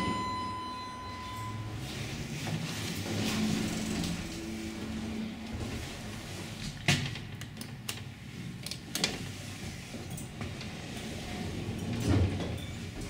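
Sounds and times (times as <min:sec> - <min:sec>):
sliding doors closing with thump: 0:01.9 - 0:07.4, 0:09.1 - 0:13.0.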